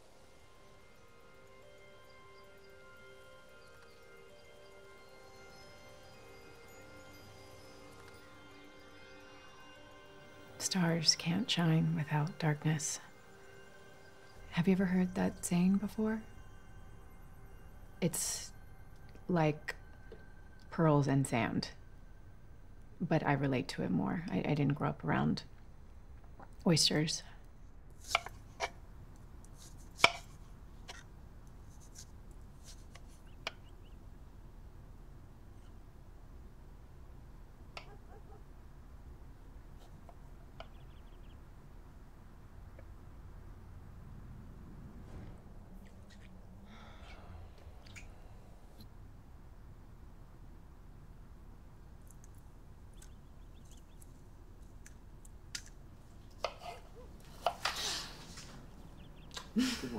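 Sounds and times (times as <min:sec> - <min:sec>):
rustling: 0:53.7 - 0:58.9.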